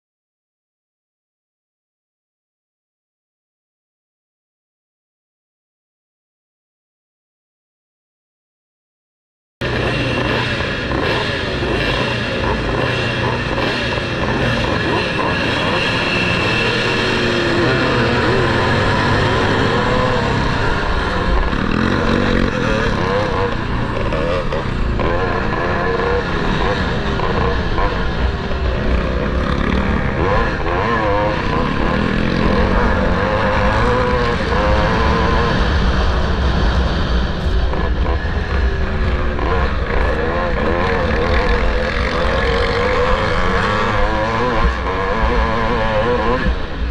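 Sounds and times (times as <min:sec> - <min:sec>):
motocross bikes revving: 0:09.6 - 0:46.9
motorbikes at full throttle: 0:09.6 - 0:46.9.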